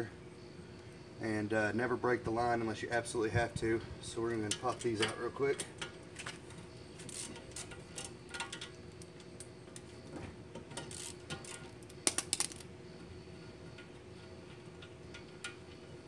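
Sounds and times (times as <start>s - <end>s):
hand ratchet clicking: 7.0s - 9.0s, 10.6s - 12.6s
metal parts clinking: 10.7s - 12.7s.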